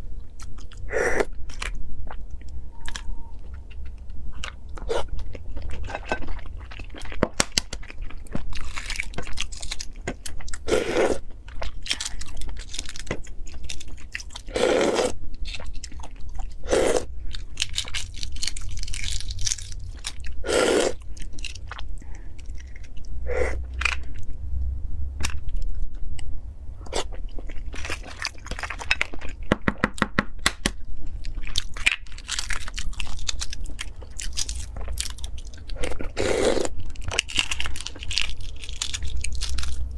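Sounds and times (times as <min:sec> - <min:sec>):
eggshells cracking: 0:36.6 - 0:39.9.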